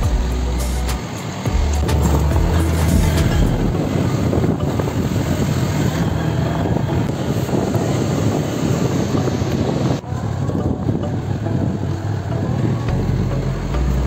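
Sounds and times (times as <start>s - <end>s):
motorcycle engine running: 0.0s - 14.0s
rough wind noise: 0.0s - 14.0s.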